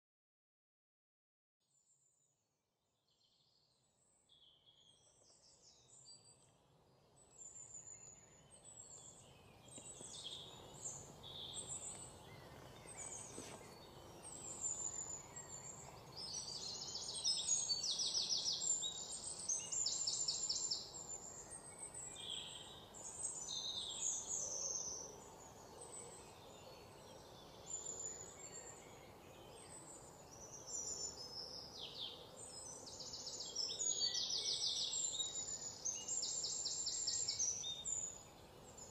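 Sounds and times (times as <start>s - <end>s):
outdoor background hiss: 3.0s - 38.9s
birds chirping and trilling: 4.4s - 38.9s.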